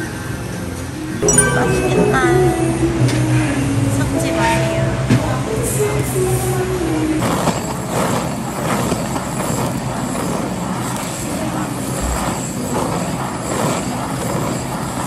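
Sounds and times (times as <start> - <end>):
blowtorch flame rushing: 7.2 - 15.0.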